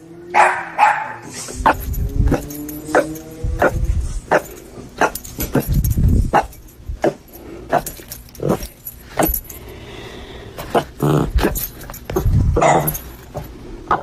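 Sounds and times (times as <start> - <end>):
dog barking: 0.3 - 5.6, 6.3 - 8.6, 12.6 - 13.0.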